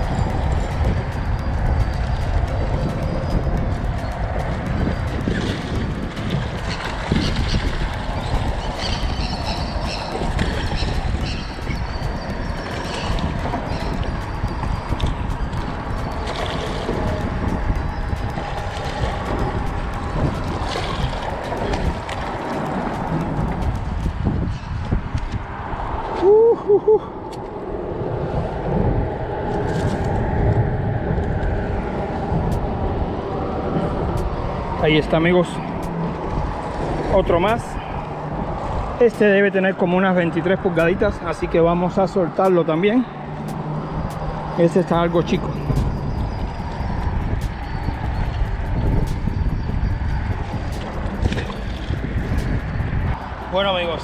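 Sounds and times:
fish splashing and thrashing: 0.0 - 24.7, 49.8 - 53.5
wind rumbling on microphone: 0.0 - 54.0.

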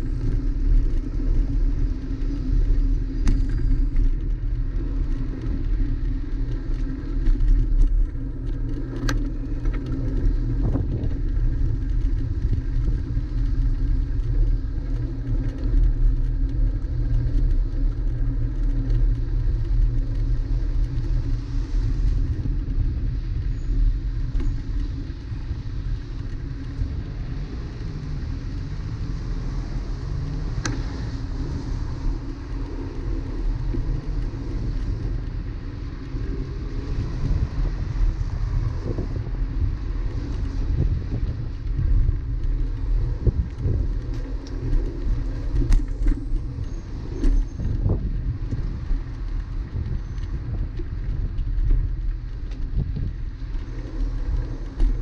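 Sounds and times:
bicycle riding rumble: 0.0 - 55.0.

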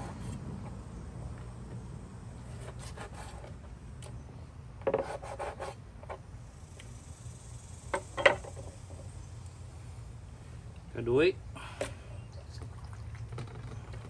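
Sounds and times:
cleaver cutting on plastic board: 2.5 - 3.6, 4.9 - 5.8.

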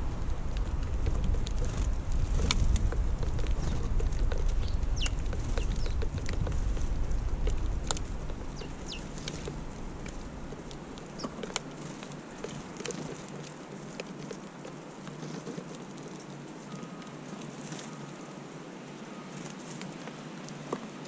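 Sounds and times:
wind rumble on microphone: 0.0 - 15.7
sparrows chirping: 3.5 - 6.4, 7.9 - 9.7, 11.0 - 13.1, 16.2 - 18.3.

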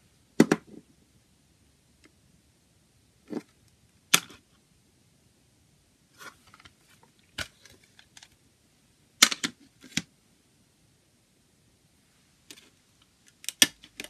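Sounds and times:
plastic case clicking: 9.2 - 10.1, 13.3 - 14.0.

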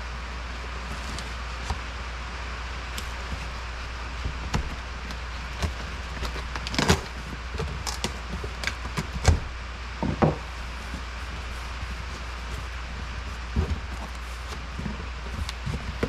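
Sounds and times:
steady low hum: 0.0 - 16.0
cardboard and tape crackling: 0.4 - 16.0
knife cutting cardboard box: 2.9 - 9.5, 10.5 - 16.0.

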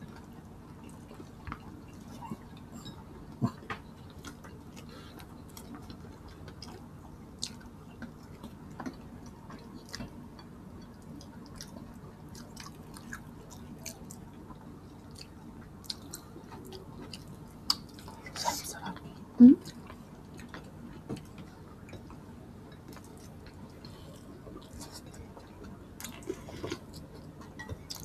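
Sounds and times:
faint low hum: 0.0 - 28.0
people chewing and eating: 0.0 - 28.0.

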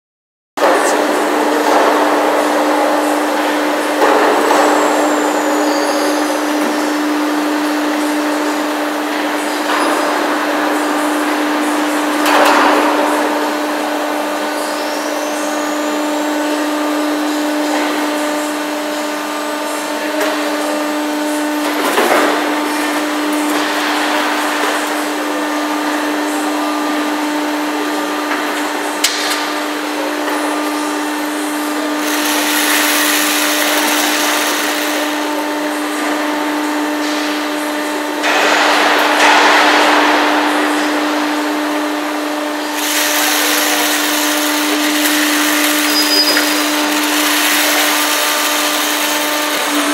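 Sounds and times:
hydraulic pump motor hum: 27.8 - 49.9
bursts of hiss and clatter: 32.0 - 35.3, 42.8 - 49.9.

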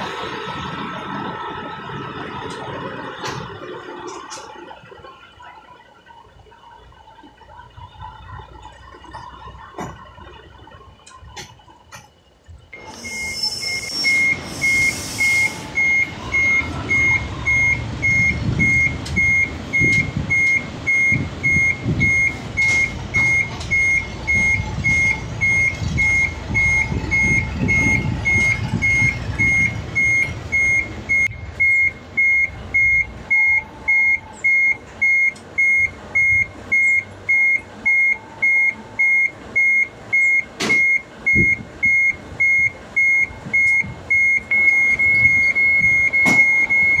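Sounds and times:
truck engine rumble: 0.0 - 47.0
truck reversing alarm beeps: 0.0 - 47.0
short air hisses: 12.9 - 15.7.

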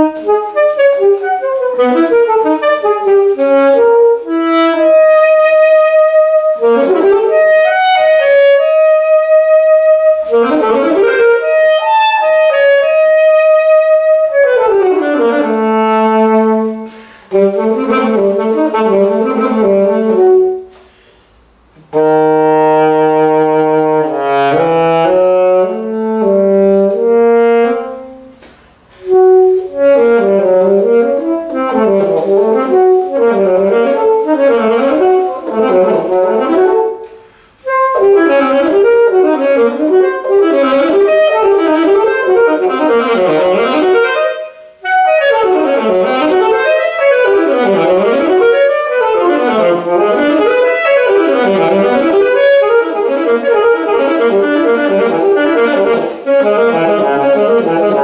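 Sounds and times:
saxophone playing: 0.0 - 58.0.

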